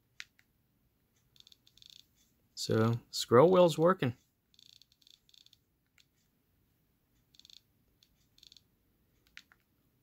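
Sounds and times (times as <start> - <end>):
click wheel ticking: 1.2 - 6.3, 7.2 - 9.7.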